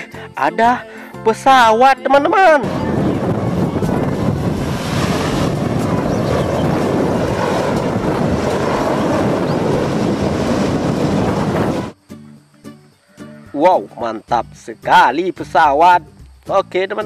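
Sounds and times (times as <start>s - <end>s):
helicopter rotor and turbine noise: 2.6s - 12.0s
wind buffeting microphone: 2.6s - 12.0s.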